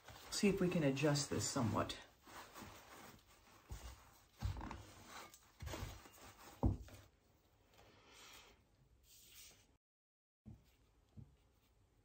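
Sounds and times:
faint rustling: 0.0s - 7.1s.

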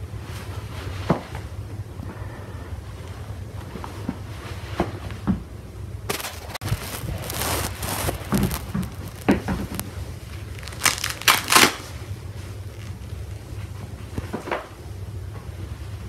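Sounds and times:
rustling and crinkling handling: 6.1s - 14.2s.

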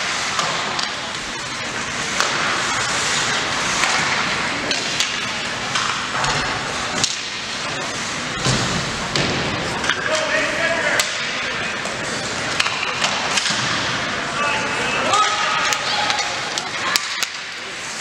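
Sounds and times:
hockey sticks and puck clacking: 0.0s - 14.2s, 15.0s - 18.0s
skating and arena ambience: 0.0s - 18.0s.

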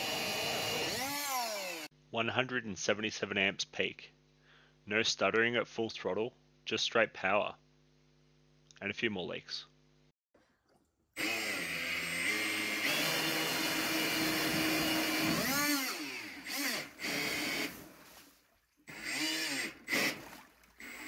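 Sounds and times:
electric motor whine: 0.0s - 1.9s, 11.2s - 17.8s, 18.9s - 20.2s
water churning: 17.8s - 21.0s.

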